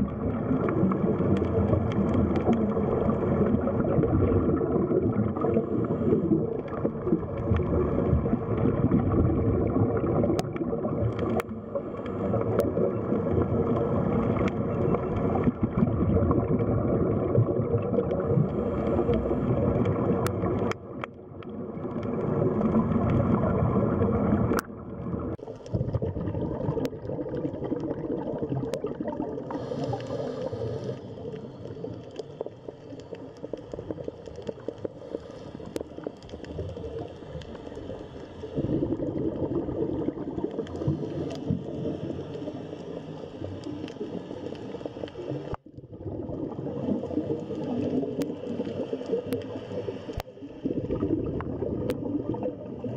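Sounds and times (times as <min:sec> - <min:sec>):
underwater rushing and gurgling: 0:00.0 - 0:52.9
sharp underwater clicks: 0:00.7 - 0:03.1, 0:10.2 - 0:15.9, 0:17.9 - 0:22.3, 0:24.4 - 0:24.7, 0:47.4 - 0:50.4.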